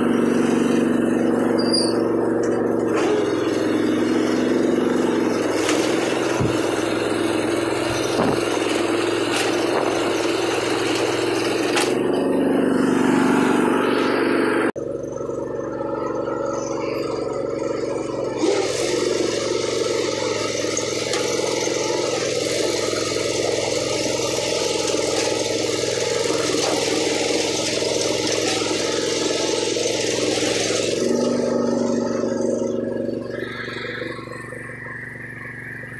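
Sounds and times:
lawn mower engine running: 0:00.0 - 0:35.9.

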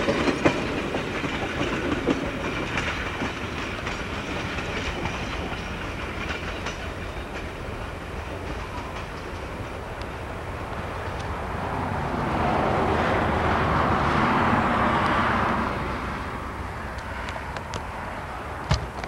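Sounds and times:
wheels clicking over rail joints: 0:00.0 - 0:11.4, 0:16.6 - 0:19.0.

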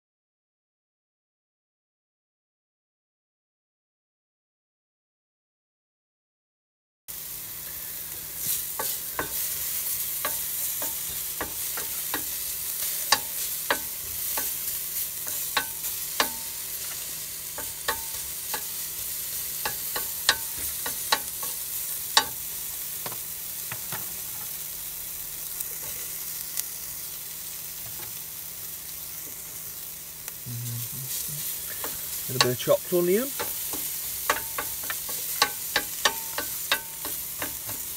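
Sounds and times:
bacon sizzling in a pan: 0:07.1 - 0:37.9
wooden utensil knocking on pan: 0:13.1 - 0:14.6, 0:19.7 - 0:21.5, 0:22.2 - 0:22.4, 0:23.0 - 0:24.1, 0:33.3 - 0:37.9.

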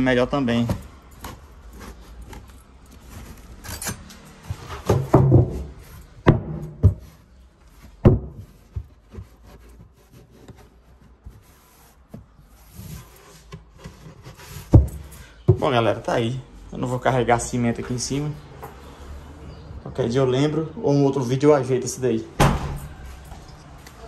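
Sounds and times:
rubbing and rustling: 0:00.4 - 0:16.1
sharp knocks of objects moved: 0:00.6 - 0:09.9.

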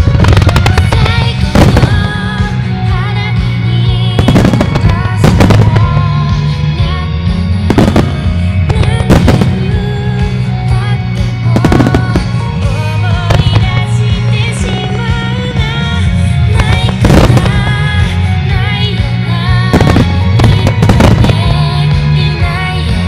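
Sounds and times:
firework bangs: 0:00.0 - 0:02.6, 0:04.1 - 0:06.6, 0:07.6 - 0:10.3, 0:11.4 - 0:12.7, 0:13.3 - 0:15.8, 0:16.5 - 0:18.7, 0:19.6 - 0:21.7
music over loudspeakers: 0:00.0 - 0:23.0.

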